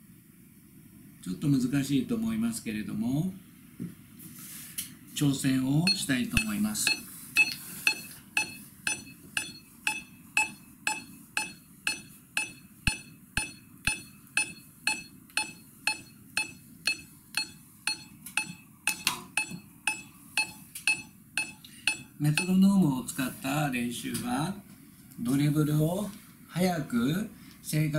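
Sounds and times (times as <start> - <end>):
metronome clicking: 5.9 - 22.6.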